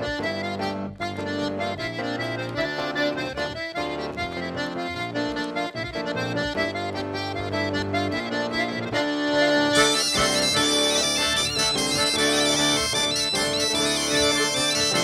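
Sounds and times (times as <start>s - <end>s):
accordion dance tune: 0.0s - 15.0s
shrill wind instrument melody: 9.6s - 15.0s.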